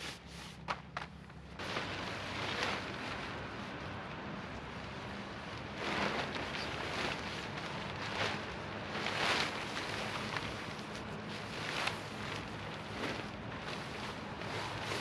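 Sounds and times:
tarp fabric rustling: 1.6s - 15.0s.

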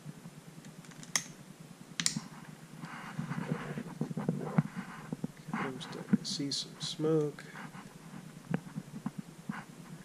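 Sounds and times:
soft crackling sizzle: 0.0s - 10.0s
sharp clicks: 2.0s - 2.2s.

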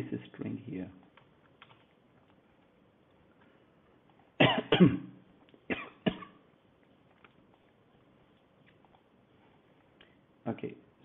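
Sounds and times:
man coughing: 4.4s - 5.1s, 5.7s - 6.4s.

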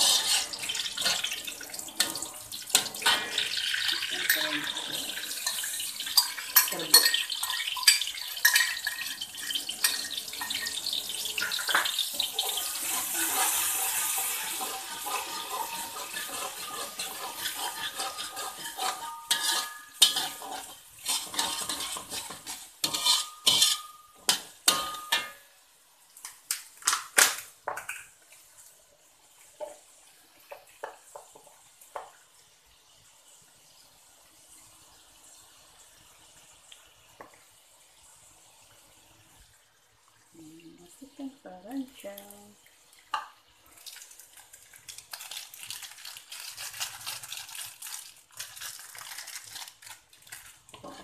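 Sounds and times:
metal spatula scraping a wok: 0.0s - 25.4s, 50.7s - 51.0s
spices sizzling in hot oil: 0.0s - 51.0s.

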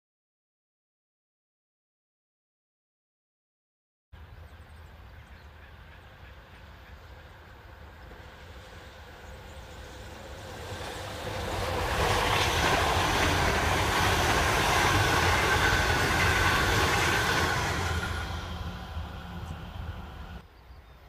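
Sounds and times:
electric train passing: 4.2s - 20.6s
train whine: 4.2s - 20.6s.

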